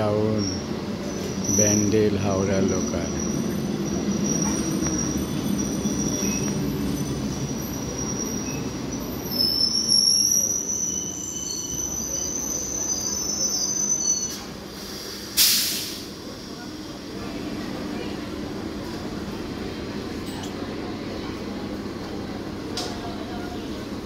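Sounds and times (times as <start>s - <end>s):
train wheels rumbling on rails: 0.0s - 24.0s
high-pitched brake squeal: 0.2s - 16.7s
short sharp hiss: 14.8s - 16.1s.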